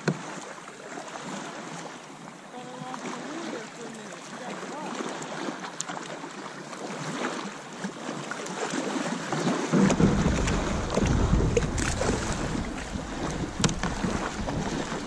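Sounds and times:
water splashing around a kayak: 0.0 - 15.0
wind buffeting microphone: 9.7 - 15.0
small knocks: 9.8 - 15.0.

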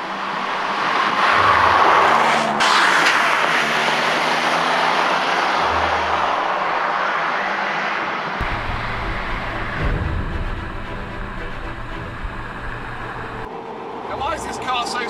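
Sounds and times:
car engine pulling away: 0.1 - 13.5
low engine drone inside cabin: 8.4 - 13.5.

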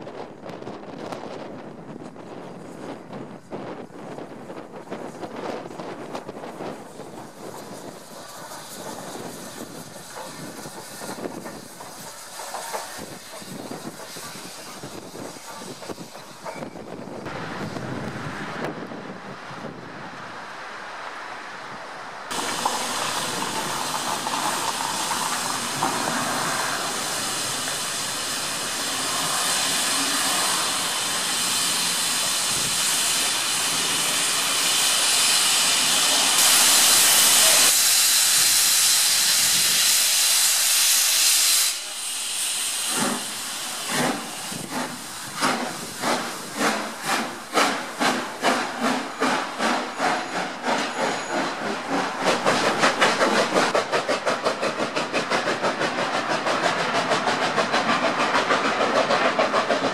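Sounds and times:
steam locomotive chuffing: 2.4 - 17.8, 22.3 - 59.9
steam hissing: 5.0 - 18.7, 22.3 - 59.9.

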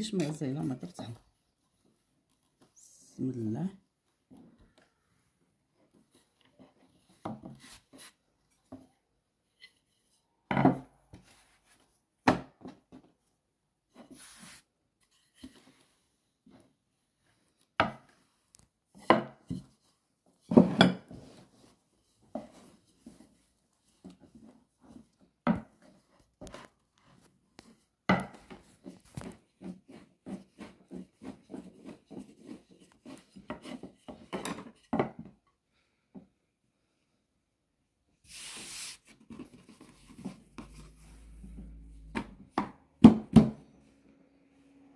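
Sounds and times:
rolling pin rolling dough: 22.2 - 35.2.

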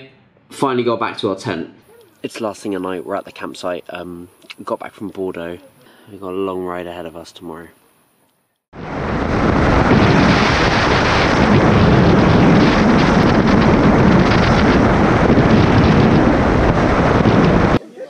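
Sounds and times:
wind buffeting microphone: 8.8 - 17.8.

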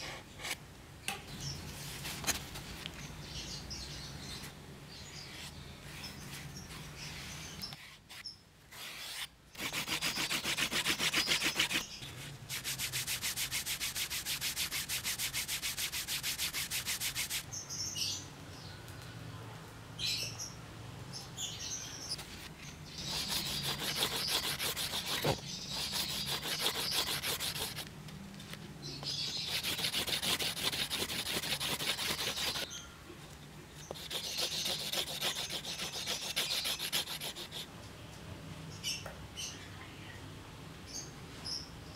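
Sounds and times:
wooden slicker rubbing leather edge: 8.8 - 11.8, 12.5 - 17.4, 23.0 - 27.9, 29.4 - 32.7, 33.9 - 37.7.

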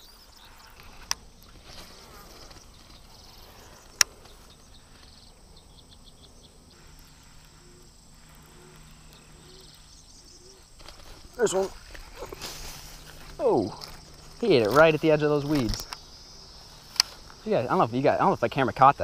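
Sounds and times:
insects chirping: 0.0 - 19.0
sharp clicks: 13.7 - 16.1.

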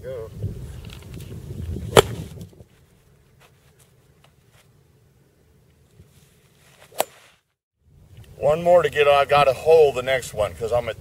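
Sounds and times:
golf club striking ball: 1.9 - 2.3, 6.9 - 7.3.

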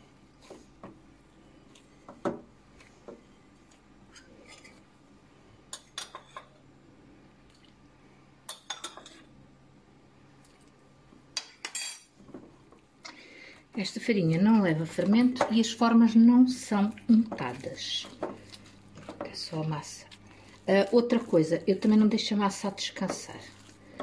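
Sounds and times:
cutlery clinking against glass bowl: 11.4 - 12.1.

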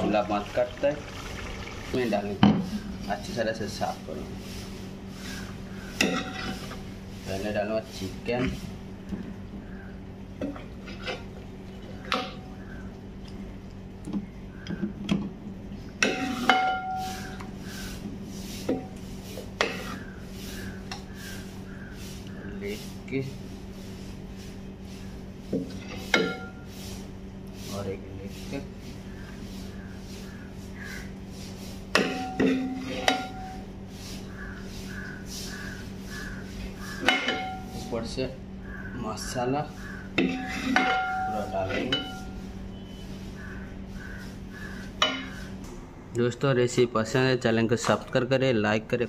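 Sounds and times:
low steady hum: 0.0 - 49.0
ladle scraping metal pot: 32.0 - 33.7, 40.2 - 42.4
ladle clinking against pot: 37.0 - 37.6
ringing metal clang: 37.0 - 38.0, 40.2 - 42.4.

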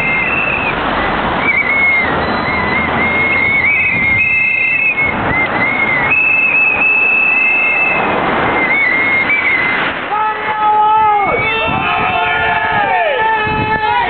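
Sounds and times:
whistle blasts: 0.0 - 0.8, 1.4 - 10.1
steady rushing noise: 0.0 - 14.0.

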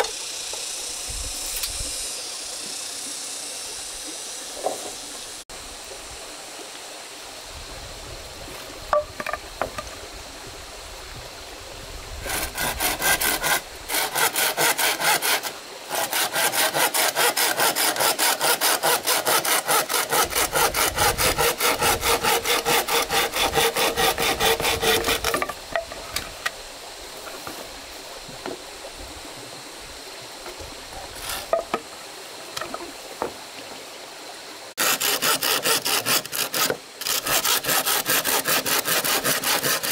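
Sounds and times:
hand saw cutting wood: 12.2 - 26.0, 31.2 - 31.8, 34.8 - 39.9.

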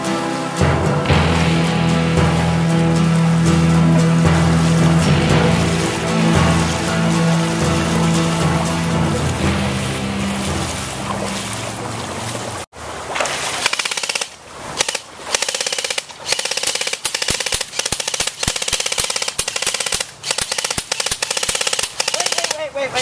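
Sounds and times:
background music: 0.0 - 12.6.

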